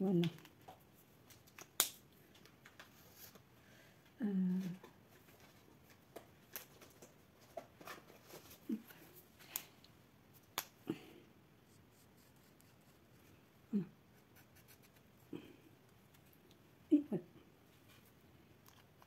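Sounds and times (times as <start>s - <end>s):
low voice hum: 13.6s - 14.0s.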